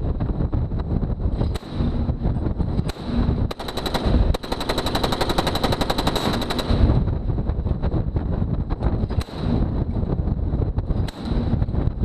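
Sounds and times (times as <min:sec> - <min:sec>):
deck gun firing bursts: 0:02.9 - 0:07.0.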